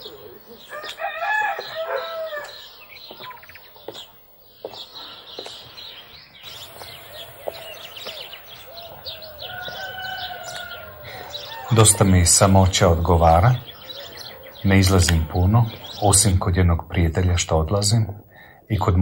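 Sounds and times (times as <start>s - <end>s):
rooster crowing: 0.0s - 2.6s, 6.6s - 15.3s.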